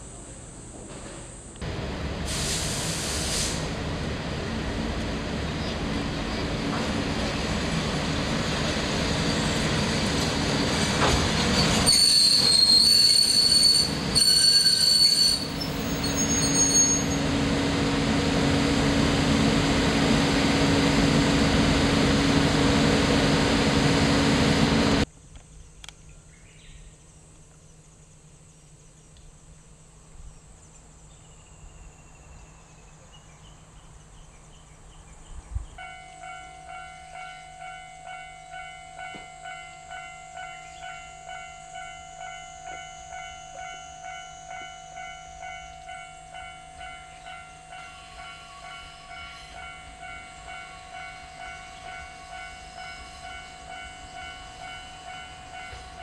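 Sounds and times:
train wheels rumbling on track: 0.3s - 25.1s, 33.4s - 56.0s
high-pitched wheel squeal: 11.5s - 17.3s
pulsing ringing tone: 35.9s - 56.0s.

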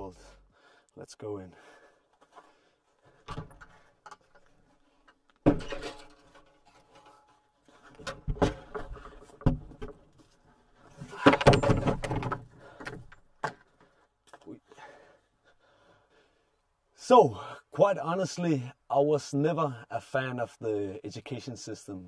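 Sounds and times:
wooden bumps and scrapes: 2.3s - 14.0s
wooden door opening: 11.2s - 13.1s.

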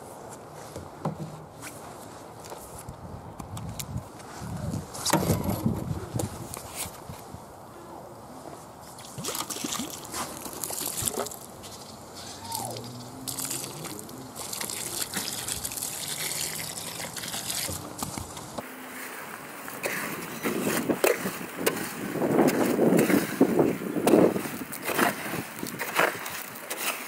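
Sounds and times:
hose water splashing on concrete mix: 8.9s - 11.8s, 12.4s - 27.0s
tool scraping wet concrete: 9.0s - 27.0s.

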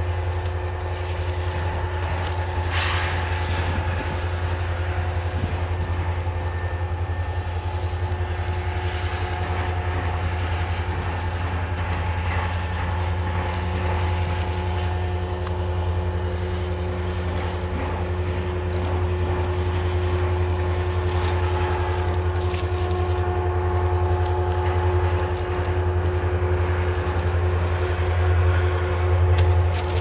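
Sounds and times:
faint steady whine: 0.0s - 30.0s
high wheel squeals and clicks: 0.0s - 30.0s
train wheels rumbling: 0.0s - 30.0s.

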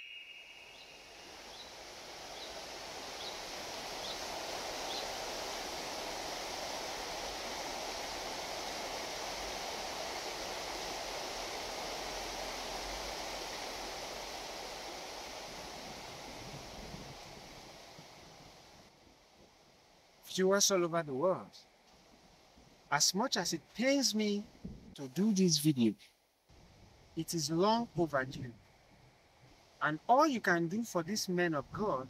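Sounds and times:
bird chirping: 0.0s - 2.6s
river flowing: 0.0s - 18.8s.

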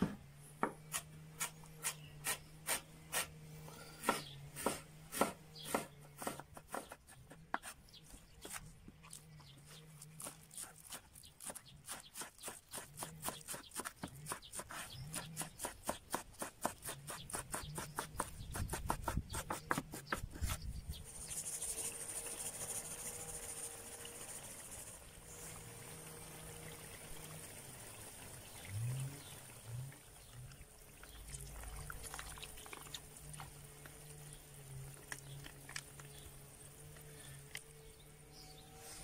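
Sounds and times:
knife chopping on wooden board: 0.0s - 3.3s, 4.0s - 7.8s, 11.4s - 20.6s.

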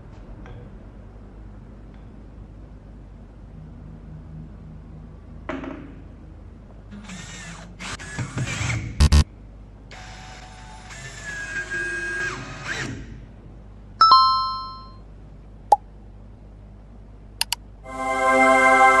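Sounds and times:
bright chime ding: 14.0s - 15.0s
mouse clicks: 17.4s - 17.6s
chord of sustained tones: 17.8s - 19.0s.

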